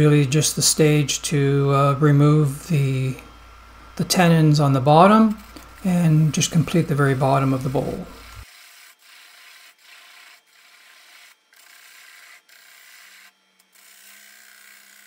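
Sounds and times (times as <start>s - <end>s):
lathe tool scraping wood: 4.0s - 15.0s.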